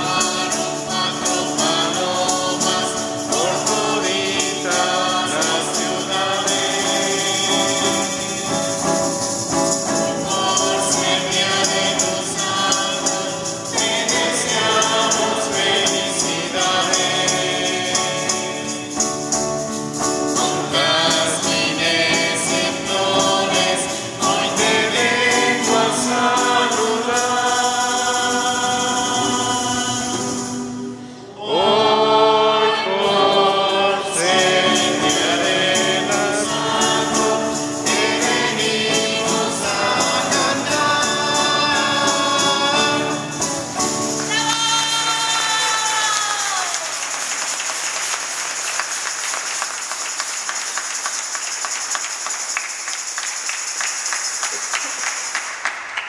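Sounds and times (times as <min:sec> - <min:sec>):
group singing devotional song: 0:00.0 - 0:50.6
applause: 0:44.1 - 0:56.0.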